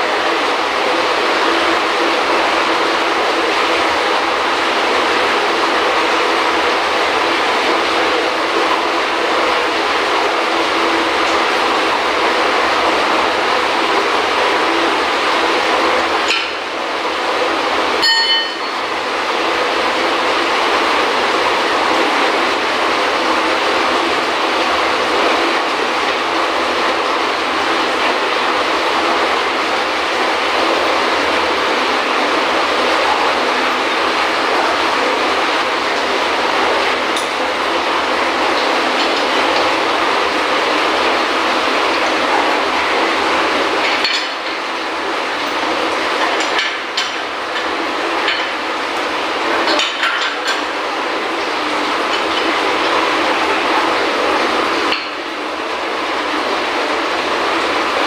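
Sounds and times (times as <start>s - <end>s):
loud machinery drone: 0.0s - 58.0s
short metallic clink: 18.0s - 18.7s.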